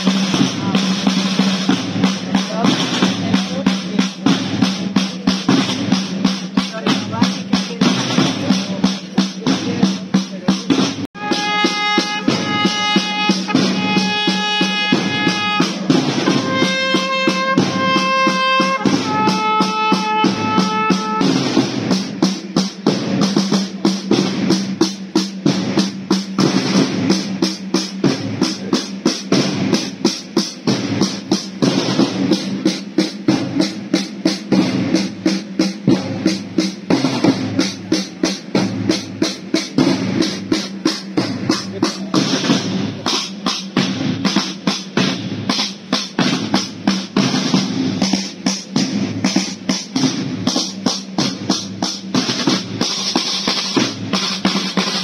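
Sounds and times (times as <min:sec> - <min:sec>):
marching drums: 0:00.0 - 0:55.0
wind instrument long notes: 0:11.2 - 0:21.6.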